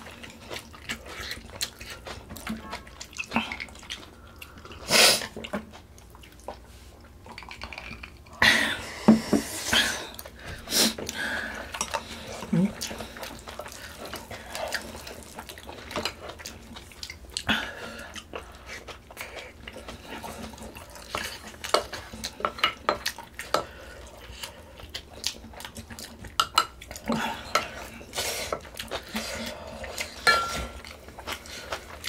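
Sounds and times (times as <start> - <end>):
utensils clinking against dishes: 30.2 - 30.9.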